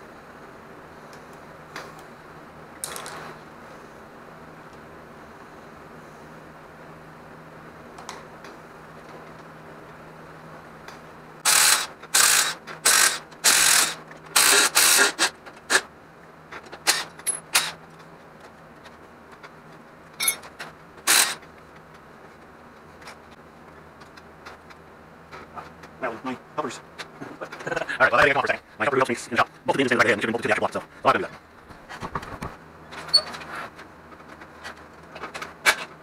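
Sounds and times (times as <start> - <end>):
cordless power tool bursts: 11.4 - 15.8, 21.1 - 21.4.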